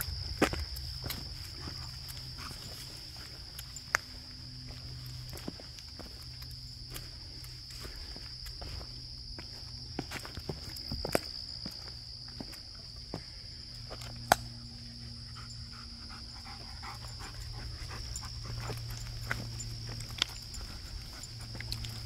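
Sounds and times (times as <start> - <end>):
footsteps on forest trail: 0.0 - 14.8, 16.1 - 22.0
high insect drone: 0.0 - 22.0
dog panting: 15.0 - 22.0.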